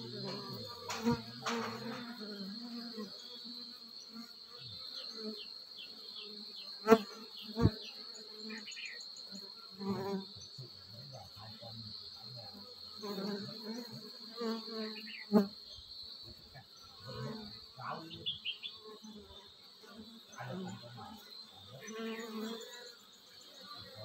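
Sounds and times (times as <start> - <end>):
honeybees buzzing: 0.0 - 24.0
sharp knocks: 0.3 - 2.1.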